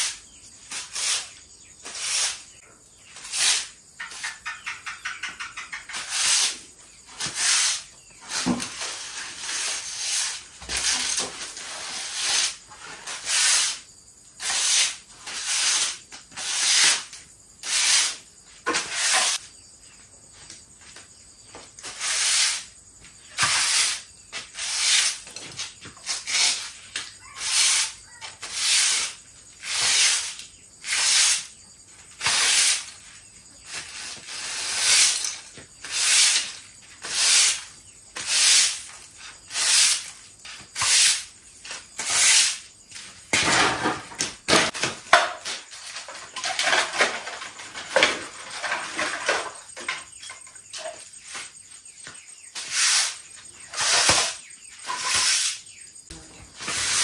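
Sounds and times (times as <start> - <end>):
hand tool swishing across ground: 23.3 - 31.5, 32.2 - 43.3, 50.7 - 55.7, 56.5 - 57.0.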